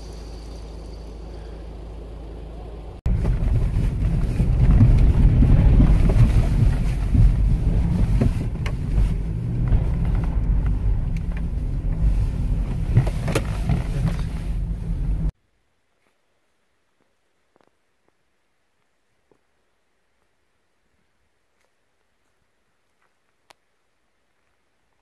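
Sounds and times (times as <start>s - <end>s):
vehicle heavy low rumble: 0.0s - 15.4s.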